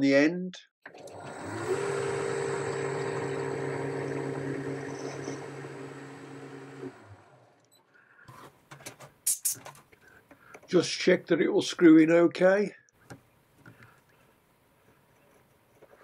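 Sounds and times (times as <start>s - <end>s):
metal lathe running: 1.0s - 7.5s.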